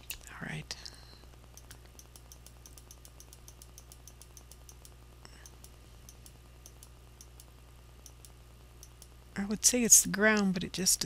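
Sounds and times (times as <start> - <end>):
low electrical hum: 0.0 - 11.0
computer mouse clicking: 1.6 - 9.1.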